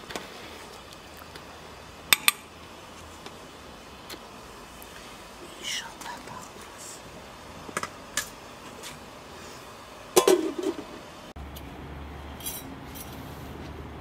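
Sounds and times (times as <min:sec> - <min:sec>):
steady low hum: 0:00.0 - 0:14.0
metal cookware and dishes clinking: 0:10.2 - 0:10.9.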